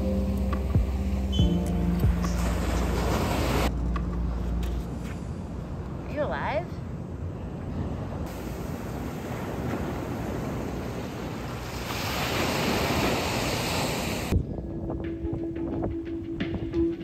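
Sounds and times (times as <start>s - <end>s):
background music: 0.0s - 6.3s, 14.3s - 17.0s
ocean surf: 2.1s - 3.7s, 7.2s - 14.4s
wind on microphone: 7.6s - 17.0s.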